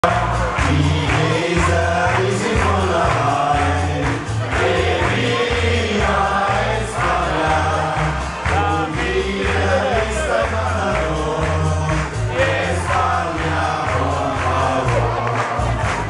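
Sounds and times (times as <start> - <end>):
acoustic guitars: 0.0 - 16.0
group singing: 0.0 - 16.0
steady bass beat: 0.0 - 16.0.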